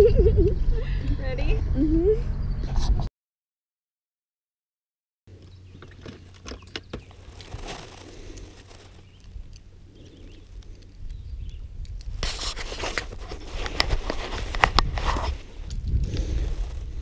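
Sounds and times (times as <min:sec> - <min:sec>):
wind rumbling on microphone: 0:00.0 - 0:03.1, 0:06.8 - 0:17.0
fishing tackle clicks and scrapes: 0:05.8 - 0:16.5.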